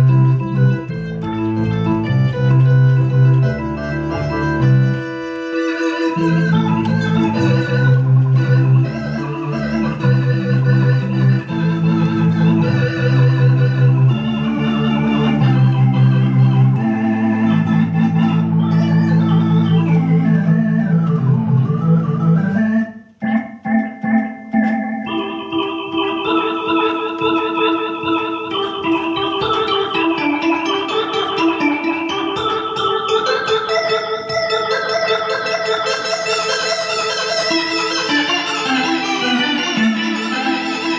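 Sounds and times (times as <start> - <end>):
electronic organ chords: 0.0 - 40.9
organ bass line: 0.0 - 40.9.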